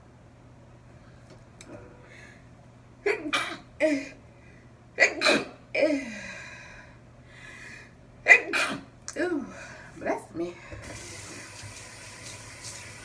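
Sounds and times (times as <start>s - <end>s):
woman sneezing: 5.0s - 6.0s.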